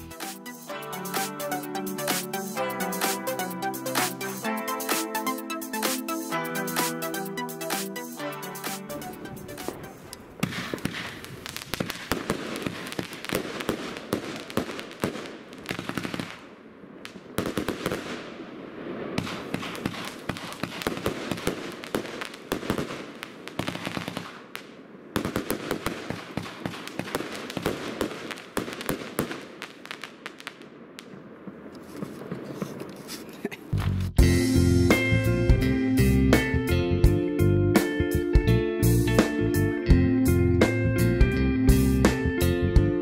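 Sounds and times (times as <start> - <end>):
firework cake pops and crackling: 10.4 - 16.5, 19.1 - 33.2.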